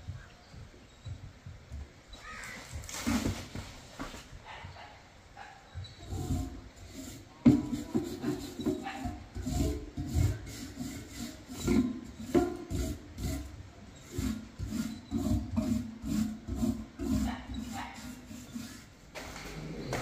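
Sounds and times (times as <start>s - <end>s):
hand tool scraping concrete: 6.0s - 19.0s.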